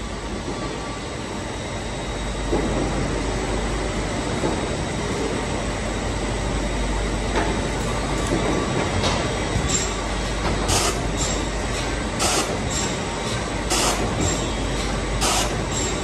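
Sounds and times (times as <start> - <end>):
saw line machinery running: 6.6 - 16.0.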